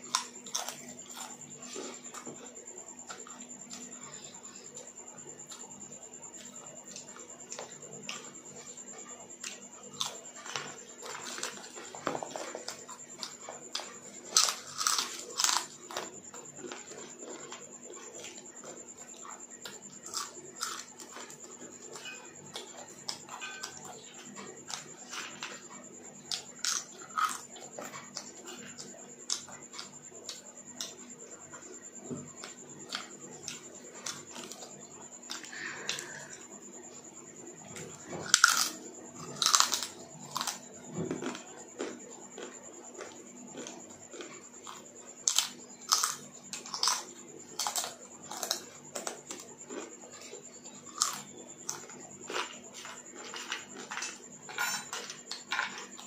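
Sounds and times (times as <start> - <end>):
faint high-pitched whine: 0.0 - 56.0
person crunching fried chips: 14.3 - 15.8, 20.0 - 21.2, 26.3 - 27.4, 38.3 - 40.6, 43.6 - 49.1.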